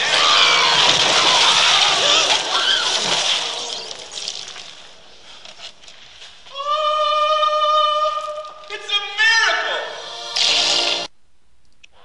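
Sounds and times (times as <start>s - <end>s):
man crying out loudly: 6.5s - 9.9s.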